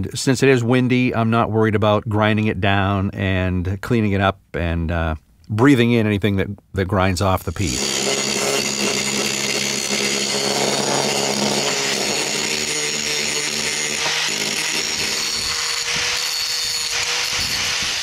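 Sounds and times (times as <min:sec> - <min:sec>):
angle grinder grinding steel: 0:07.3 - 0:18.0.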